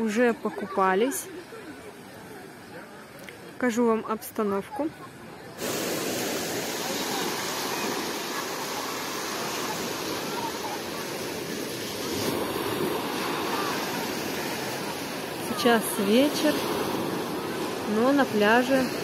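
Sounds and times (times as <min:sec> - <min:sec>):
surf washing onto beach: 0:05.5 - 0:19.0.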